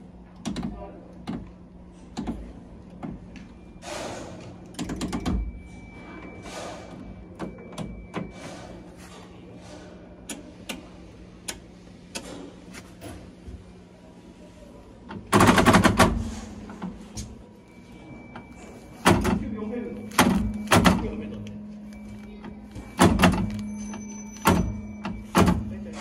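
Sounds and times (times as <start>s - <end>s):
metal control levers clicking: 23.0s - 25.7s.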